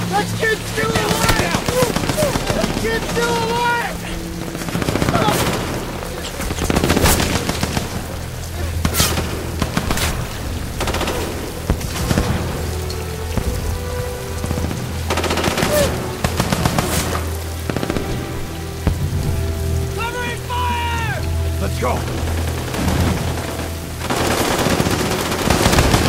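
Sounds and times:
low music drone: 0.0 - 26.0
steady rain: 0.0 - 26.0
gunshots: 8.8 - 12.6
machine-gun fire: 24.1 - 26.0.

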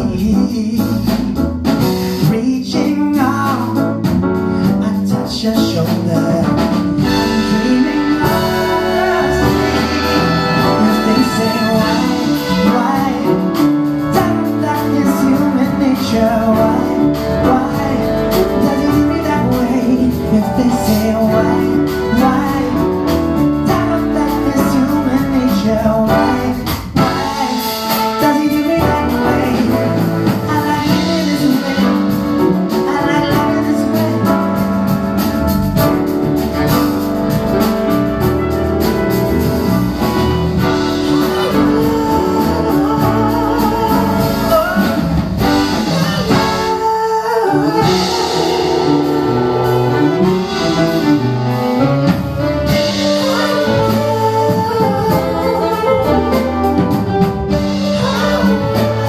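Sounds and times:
grand piano: 0.0 - 59.0
jazz band playing: 0.0 - 59.0
saxophones: 7.0 - 14.3, 35.8 - 59.0.

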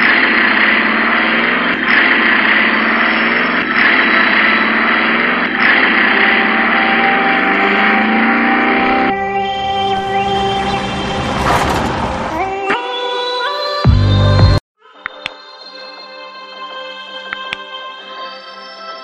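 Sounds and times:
loud rushing roar: 3.8 - 12.7.

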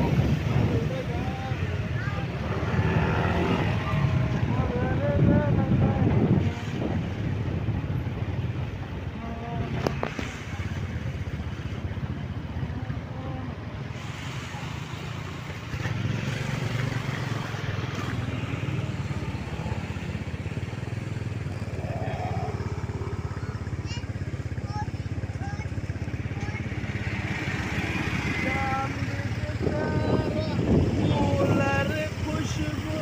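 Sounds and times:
road and wind noise: 0.0 - 33.0
motor scooter engine running: 15.0 - 33.0.

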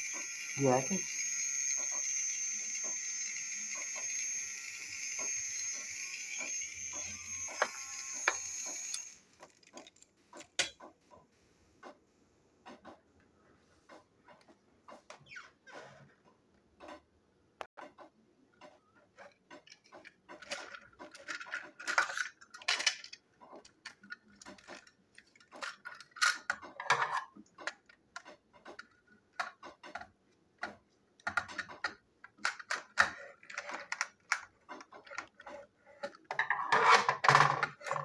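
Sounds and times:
plastic toy clicking and tapping: 19.4 - 36.5.

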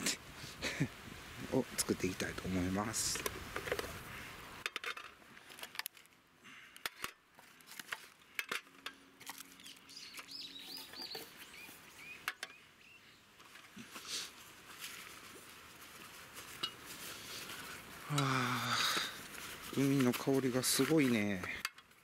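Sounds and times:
metal camp cookware clinking: 4.6 - 5.9, 7.8 - 9.4, 16.5 - 16.9, 20.6 - 22.0
small bird chirping: 9.4 - 13.3.

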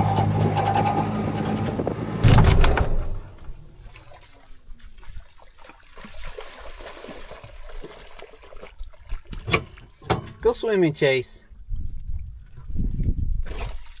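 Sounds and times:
dogs splashing in water: 3.8 - 10.1.

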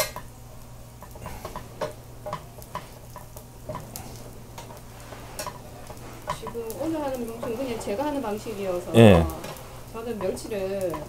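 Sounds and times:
utensils tapping in frying pan: 1.0 - 3.9.

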